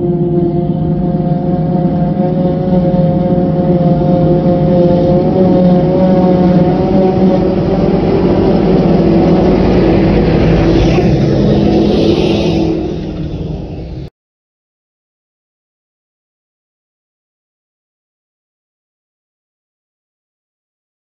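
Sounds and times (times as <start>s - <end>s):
harvester engine drone: 0.0s - 14.1s
steady whine: 0.0s - 14.1s.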